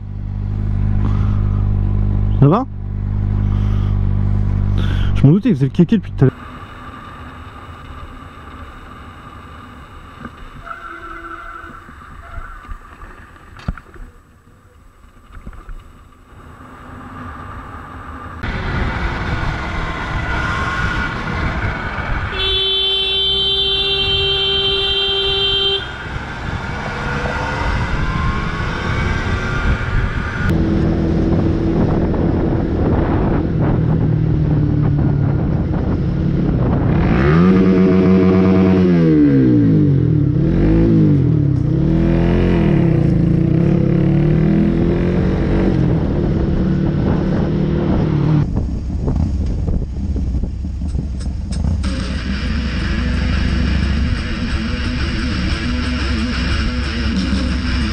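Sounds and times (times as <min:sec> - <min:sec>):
road traffic noise: 0:00.0 - 0:57.9
vehicle horn honking: 0:22.3 - 0:26.1
motorcycle engine running: 0:45.8 - 0:57.9.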